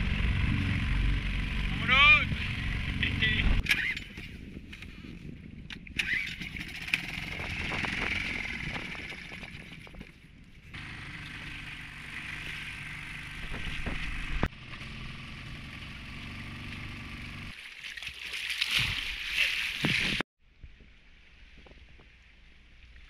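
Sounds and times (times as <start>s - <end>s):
outboard motor running: 0.0s - 4.2s, 6.0s - 17.5s.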